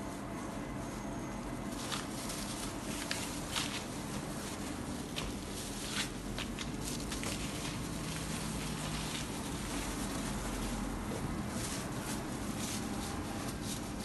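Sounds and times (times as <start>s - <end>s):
plastic gloves crinkling: 1.5s - 14.0s.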